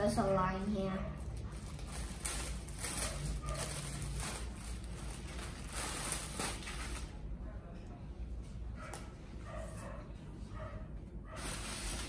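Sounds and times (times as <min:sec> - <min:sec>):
plastic bag crinkling: 0:01.2 - 0:07.3.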